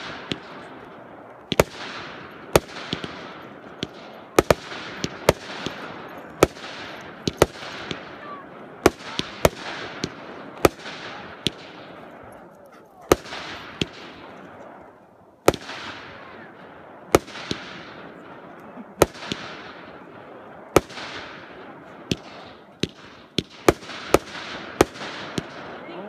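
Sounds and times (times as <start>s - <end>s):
fireworks bangs with hiss: 0.0s - 12.0s, 13.1s - 14.4s, 15.4s - 18.3s, 18.9s - 25.7s.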